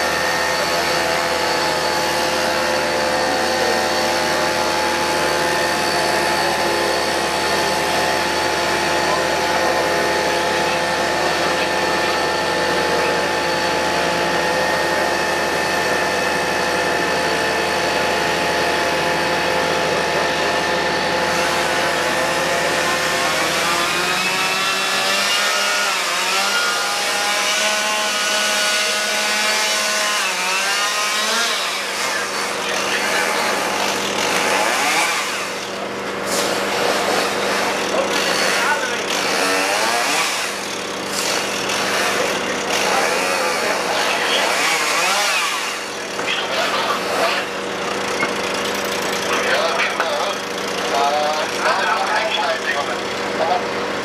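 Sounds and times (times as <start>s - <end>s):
vehicle engines and machinery droning: 0.0s - 54.0s
small engine revving: 18.3s - 51.3s.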